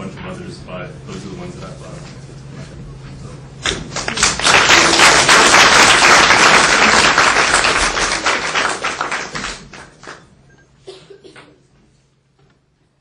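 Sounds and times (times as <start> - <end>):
audience applauding: 3.6 - 10.2.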